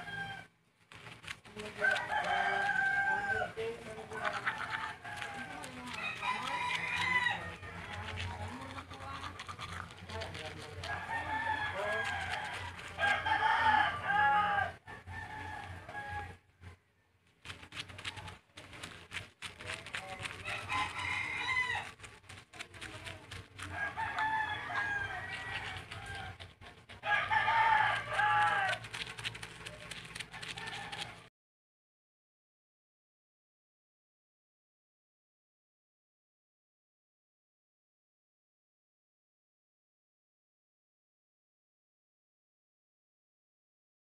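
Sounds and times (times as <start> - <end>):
rooster crowing: 0.0 - 0.5, 1.7 - 8.0, 10.8 - 16.8, 20.0 - 22.0, 23.6 - 29.1, 30.3 - 31.3.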